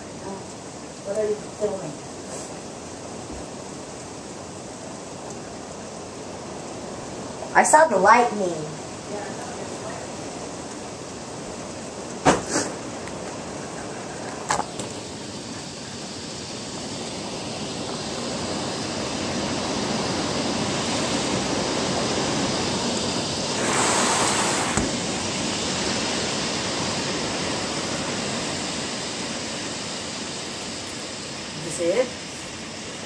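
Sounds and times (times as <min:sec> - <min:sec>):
steady rain: 0:00.0 - 0:33.0.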